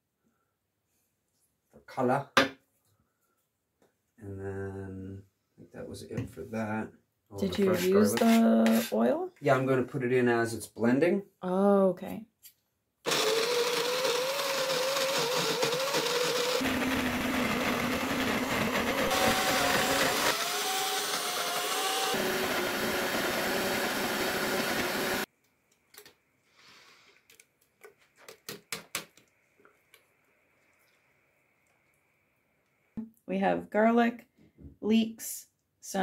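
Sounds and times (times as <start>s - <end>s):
blender motor whine: 13.1s - 25.3s.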